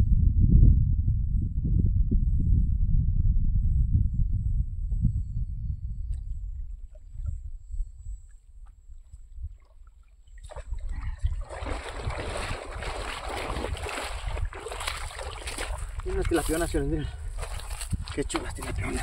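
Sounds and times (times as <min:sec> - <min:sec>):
wind rumble on microphone: 0:00.0 - 0:19.0
water splashing and streaming: 0:09.0 - 0:19.0.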